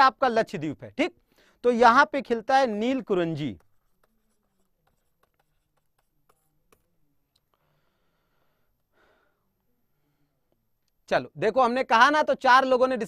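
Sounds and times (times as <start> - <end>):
stylus tapping and scratching: 2.9 - 7.5.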